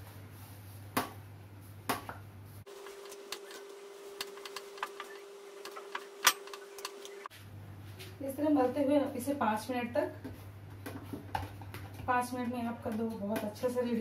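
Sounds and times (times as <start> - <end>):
faint steady hum: 2.2 - 9.7.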